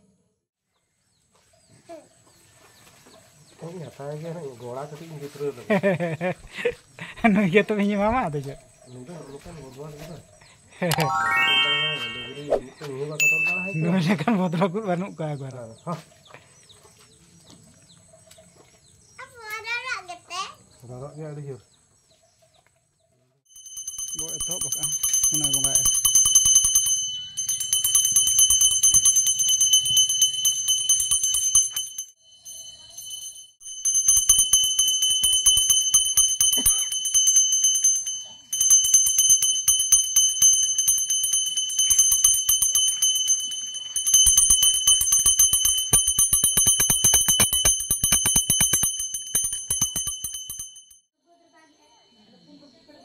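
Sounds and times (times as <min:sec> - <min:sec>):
small hand bell ringing rapidly: 0:13.2 - 0:14.2, 0:23.5 - 0:51.1.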